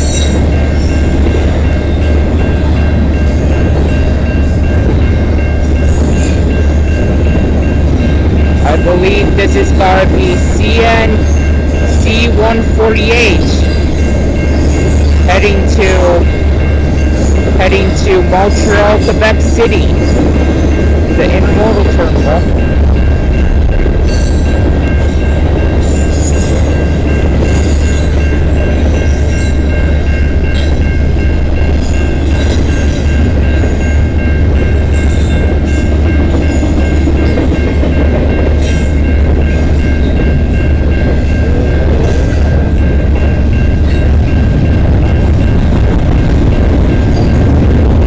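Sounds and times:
freight train wheels rumbling: 0:00.0 - 0:48.0
train clicks and clatter: 0:00.0 - 0:48.0.

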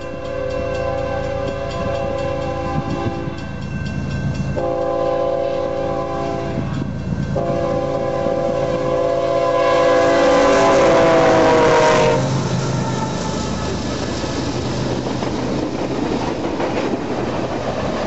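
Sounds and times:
locomotive air horn blasts: 0:00.1 - 0:03.4, 0:04.6 - 0:13.2
diesel engines rumbling: 0:10.4 - 0:18.0.

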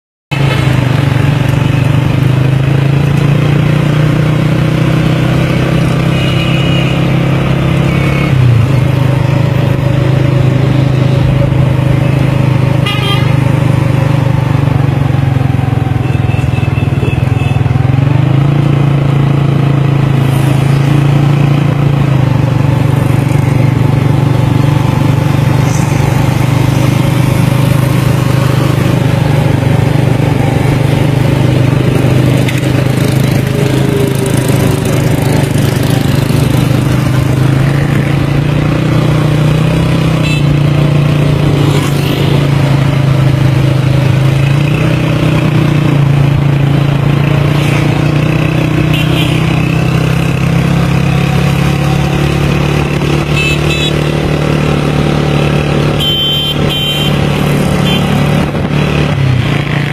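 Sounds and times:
street traffic: 0:00.3 - 0:59.9
small motorcycle engine running: 0:10.1 - 0:59.9.

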